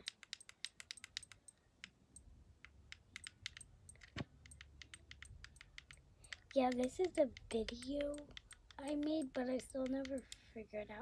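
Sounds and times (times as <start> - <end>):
fingers tapping plastic camera: 0.0 - 10.5.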